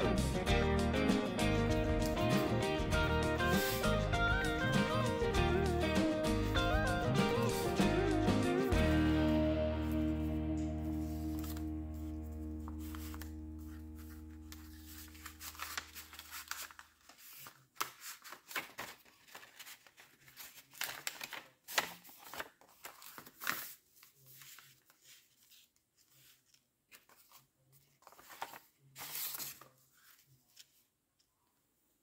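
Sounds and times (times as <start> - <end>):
background music: 0.0 - 16.2
paper rustling and sliding: 3.4 - 4.0, 10.8 - 30.8.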